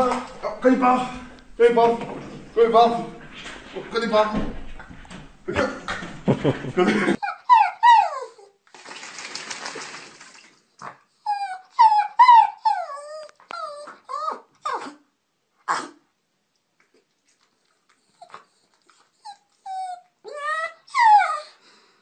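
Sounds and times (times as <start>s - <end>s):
dog whining and howling: 7.2s - 8.6s, 11.2s - 15.0s, 19.2s - 21.6s.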